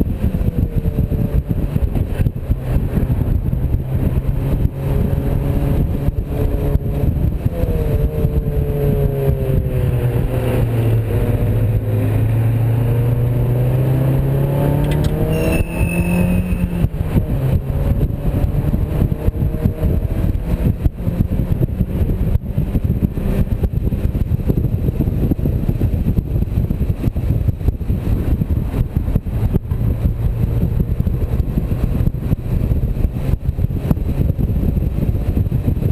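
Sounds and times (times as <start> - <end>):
car engine under hard driving: 0.0 - 35.9
wind buffeting: 0.0 - 35.9
brief high squeal: 15.2 - 16.8.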